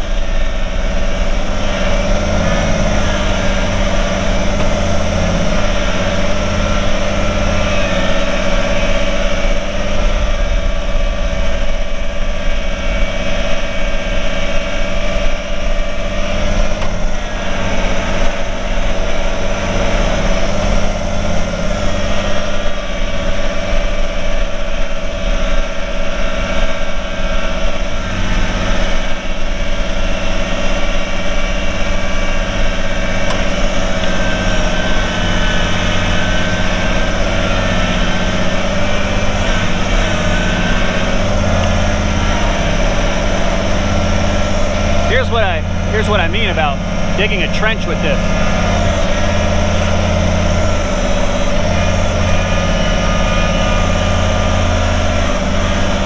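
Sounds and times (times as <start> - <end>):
steady whine: 0.0 - 56.0
tractor diesel engine running: 0.0 - 56.0.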